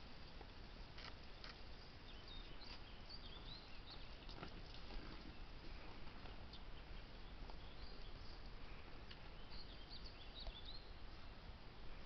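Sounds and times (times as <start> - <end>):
low hiss and rumble: 0.0 - 12.0
faint bird chirps: 1.4 - 11.4.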